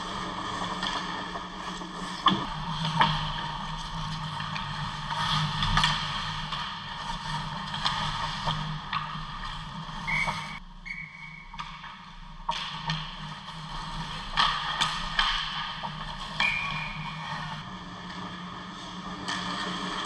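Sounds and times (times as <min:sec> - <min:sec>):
sticks and puck clacking: 0:04.1 - 0:17.6
high steady tone: 0:10.1 - 0:11.4.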